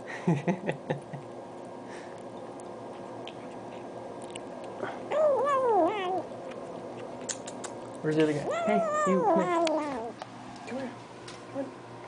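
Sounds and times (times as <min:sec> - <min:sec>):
wet chewing: 0:02.1 - 0:10.2
cat meowing: 0:05.1 - 0:06.3, 0:08.4 - 0:10.2.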